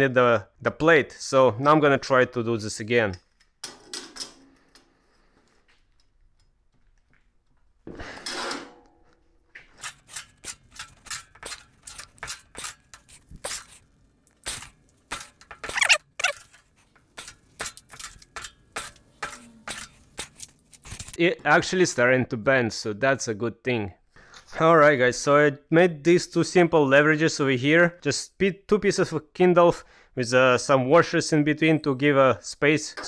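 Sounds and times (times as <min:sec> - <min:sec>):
metal plate clicking and knocking: 0:09.8 - 0:13.0, 0:15.1 - 0:20.4.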